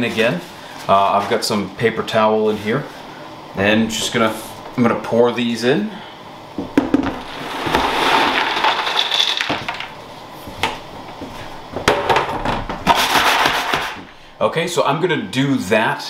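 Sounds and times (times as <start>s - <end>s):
tray knocking on bin: 6.6s - 9.9s
popcorn kernels rattling into bin: 7.1s - 10.0s.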